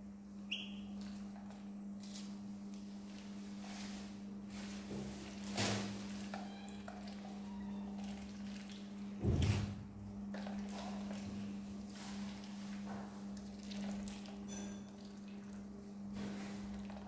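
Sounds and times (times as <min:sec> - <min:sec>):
ducklings cheeping: 0:00.5 - 0:00.9.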